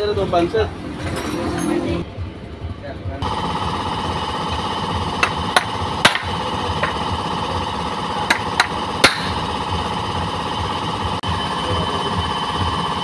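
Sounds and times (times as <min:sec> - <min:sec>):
steady background hum: 0:00.0 - 0:13.0
hammer tapping metal punch: 0:05.2 - 0:07.0, 0:08.2 - 0:09.4.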